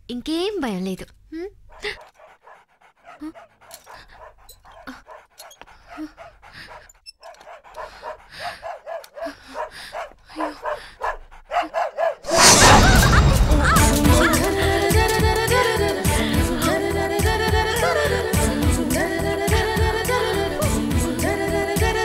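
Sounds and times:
small dog barking: 0:07.5 - 0:12.3
loud music: 0:12.4 - 0:16.4.

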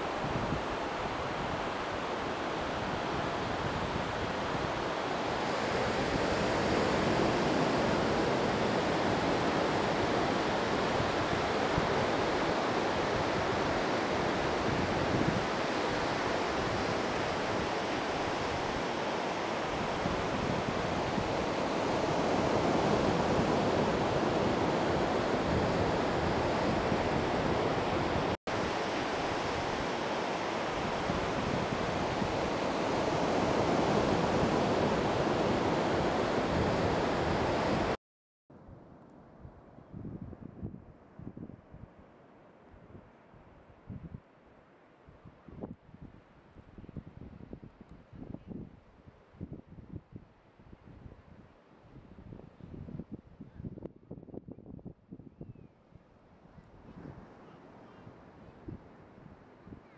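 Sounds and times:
ocean surf: 0:00.0 - 0:38.0
wind on microphone: 0:00.0 - 0:38.0, 0:39.4 - 0:42.0, 0:45.1 - 0:59.9.

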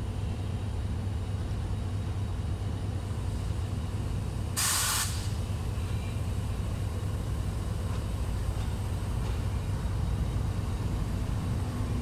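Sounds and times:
diesel locomotive engine rumbling: 0:00.0 - 0:12.0
compressed air hiss: 0:04.6 - 0:05.4.

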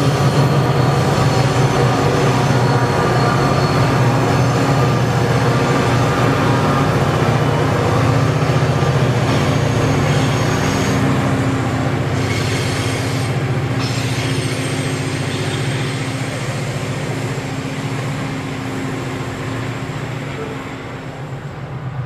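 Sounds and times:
diesel locomotive engine droning: 0:00.0 - 0:22.0
wagons rumbling on rails: 0:00.0 - 0:22.0.

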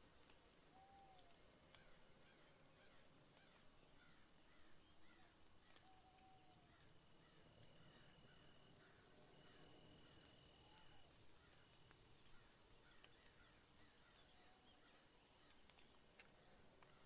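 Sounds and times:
faint room hiss: 0:00.0 - 0:17.0
soft ticks: 0:15.4 - 0:17.0.

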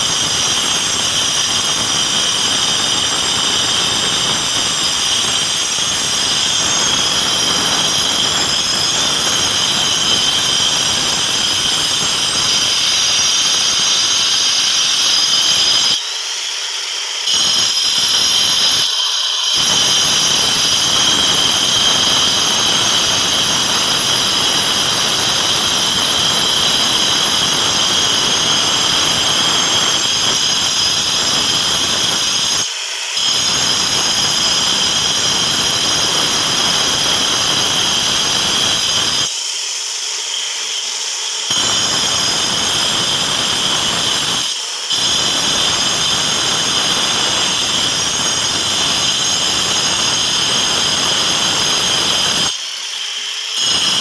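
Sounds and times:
angle grinder grinding stone: 0:00.0 - 0:54.0.

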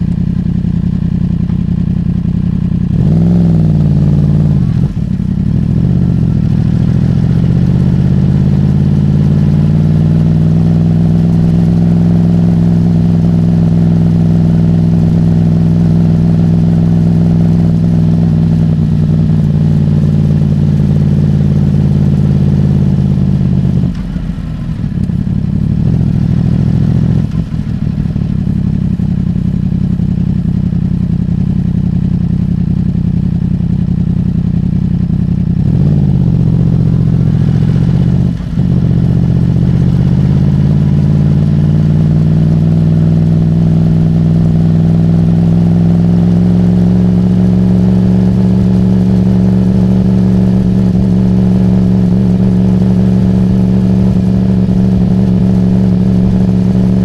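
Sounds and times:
motorcycle engine revving: 0:00.0 - 0:57.0.

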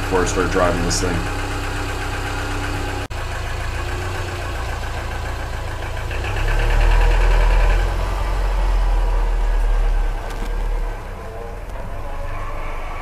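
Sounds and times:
car engine idling: 0:00.0 - 0:13.0
deep low rumble: 0:07.7 - 0:13.0.

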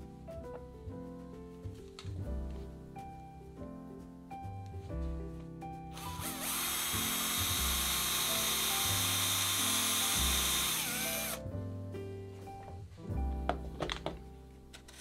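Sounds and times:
cordless drill boring into wood: 0:06.0 - 0:11.4.

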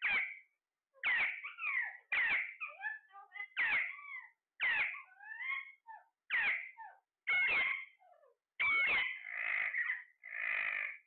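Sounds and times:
parakeets squawking: 0:00.0 - 0:00.4, 0:01.0 - 0:11.0
parakeets chattering: 0:00.0 - 0:11.0.

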